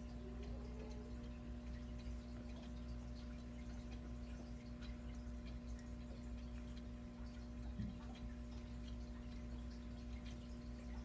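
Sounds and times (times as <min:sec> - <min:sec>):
aquarium filter humming: 0:00.0 - 0:11.0
water trickling and dripping: 0:00.0 - 0:11.0.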